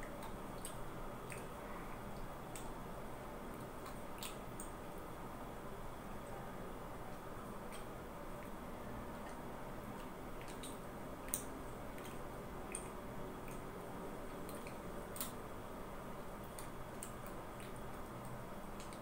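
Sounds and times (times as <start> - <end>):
low room hum: 0.0 - 19.0
wet mouth clicks and smacks: 0.2 - 1.5, 3.6 - 4.7, 10.0 - 13.6, 14.5 - 15.4.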